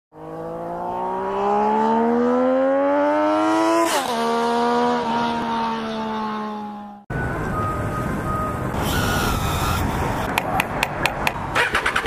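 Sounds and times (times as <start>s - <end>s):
motorcycle accelerating past: 0.2s - 7.0s.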